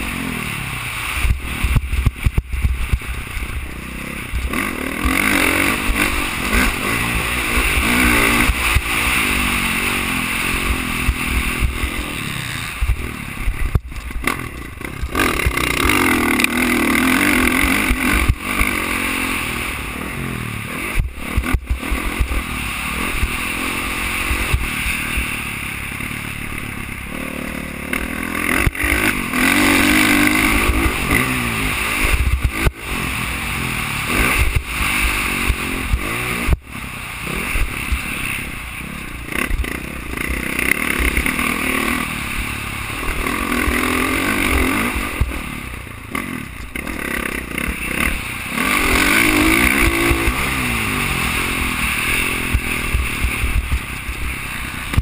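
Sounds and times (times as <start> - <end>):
dirt bike engine revving: 0.0 - 55.0
wind rumbling on microphone: 28.6 - 45.8, 47.5 - 55.0.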